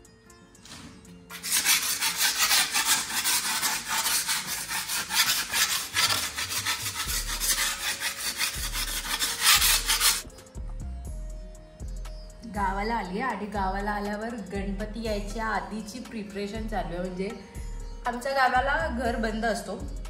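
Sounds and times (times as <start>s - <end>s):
paint scraping off wall: 0.6s - 10.3s.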